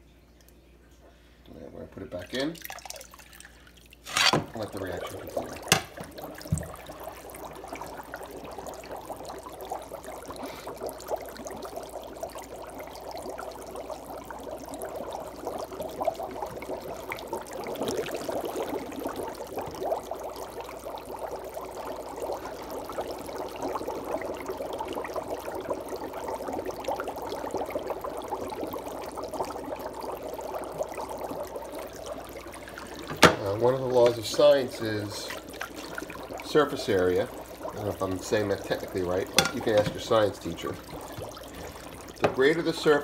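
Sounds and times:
dry ice bubbling in water: 1.5s - 43.0s.

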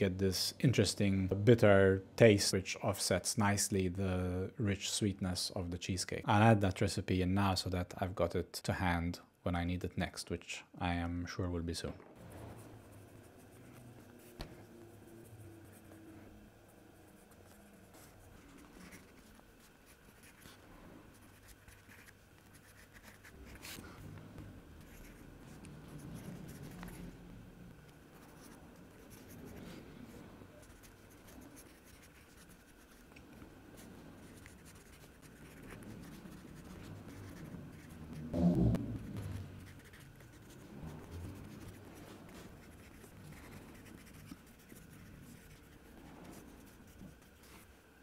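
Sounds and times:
pencil scratching on paper: 12.2s - 27.2s, 27.8s - 47.7s.

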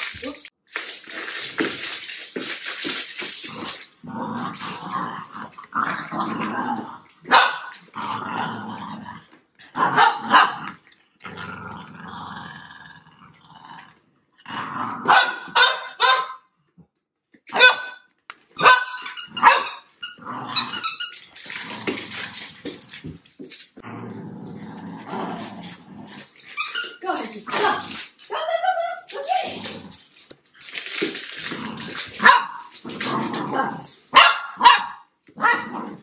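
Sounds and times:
dogs growling: 3.3s - 15.1s, 20.2s - 23.2s, 23.8s - 26.6s, 29.4s - 30.4s, 31.2s - 34.0s
dogs barking: 7.3s - 7.7s, 15.1s - 16.4s, 17.5s - 18.0s, 32.2s - 32.6s, 34.1s - 35.7s.

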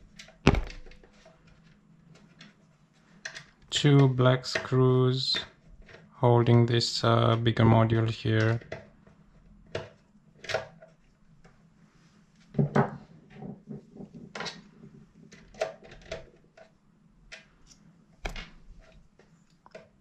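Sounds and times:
loud thump: 0.5s - 1.0s.

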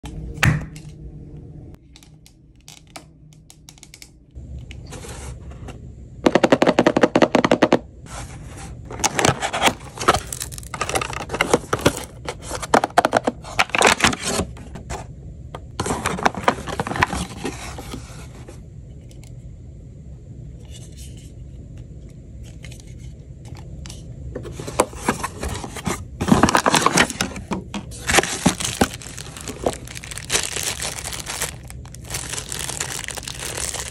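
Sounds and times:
cardboard and plastic packaging crinkling: 8.9s - 14.6s, 15.8s - 18.1s, 24.5s - 33.9s.

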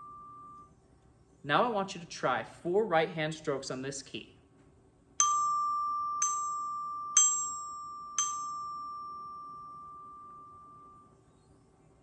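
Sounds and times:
glockenspiel notes: 5.2s - 11.1s.

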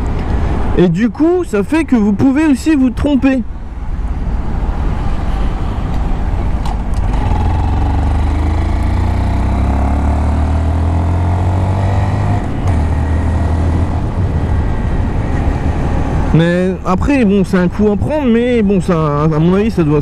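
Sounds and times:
motorcycle engine accelerating: 6.9s - 14.8s.

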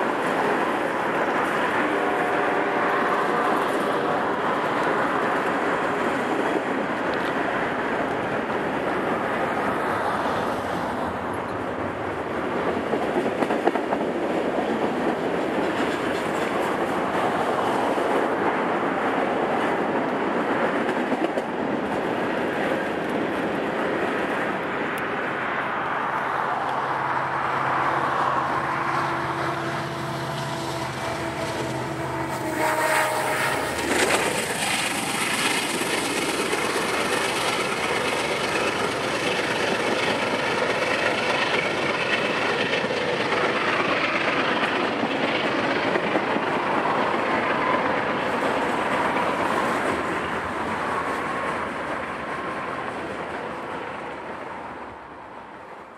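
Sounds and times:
train wheels rumbling on rails: 0.0s - 55.9s
locomotive engine drone: 22.1s - 45.3s.

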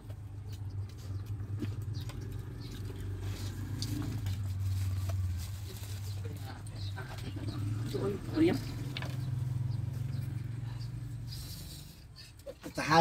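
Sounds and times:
chewing with wet clicks: 0.0s - 4.4s.

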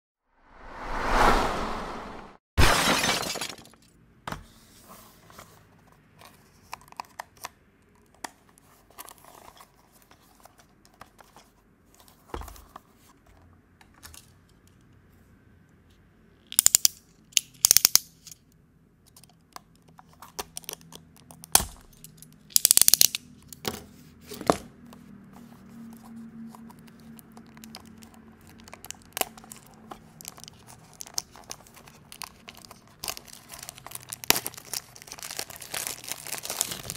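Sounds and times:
sharp hit: 0.5s - 3.0s
tape crinkling: 27.2s - 36.9s.

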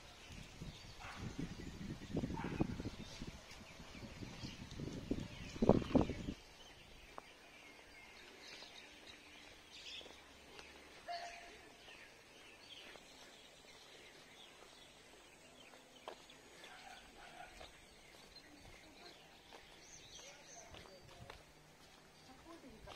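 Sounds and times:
birds chirping: 0.0s - 22.9s.

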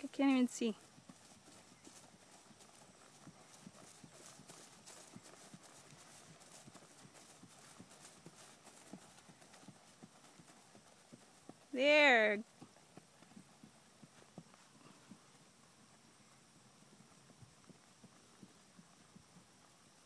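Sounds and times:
horse hoofbeats on grass: 0.0s - 20.0s.

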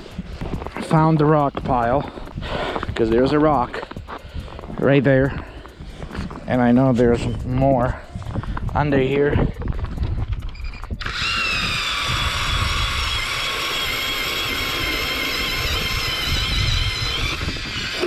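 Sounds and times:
electric ice auger whining: 10.6s - 18.0s.

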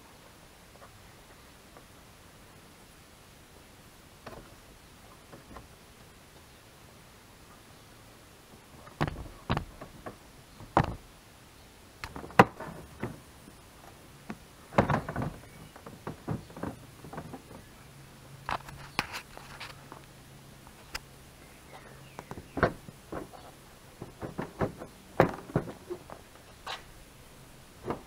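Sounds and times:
plastic knocks and clacks: 8.9s - 11.0s, 14.3s - 17.6s, 22.2s - 26.3s.

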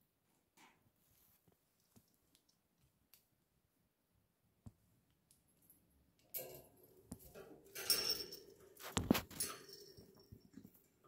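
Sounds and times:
clattering on cage bars: 6.3s - 11.0s.

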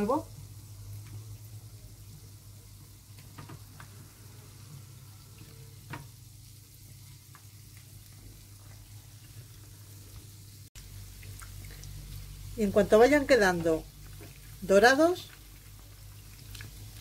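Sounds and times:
low steady hum: 0.0s - 17.0s
oil sizzling in frying pan: 0.0s - 17.0s.

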